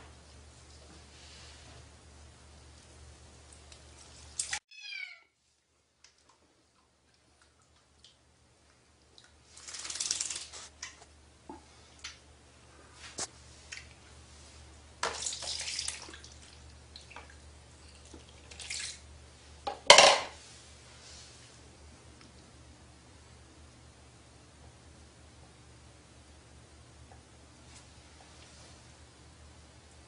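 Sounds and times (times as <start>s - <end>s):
water dripping: 6.0s - 12.2s, 15.0s - 19.1s
water splashing in basin: 9.1s - 11.0s, 15.0s - 19.0s.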